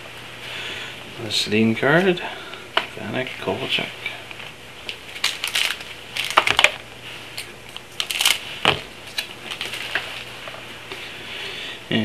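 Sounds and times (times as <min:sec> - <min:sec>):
trading cards rustling: 0:04.9 - 0:06.8, 0:07.4 - 0:10.3.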